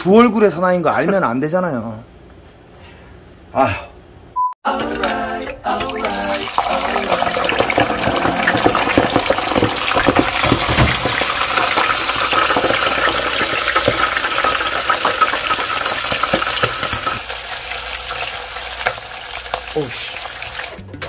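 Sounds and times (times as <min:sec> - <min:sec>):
prawns sizzling in hot oil: 0:04.7 - 0:20.8.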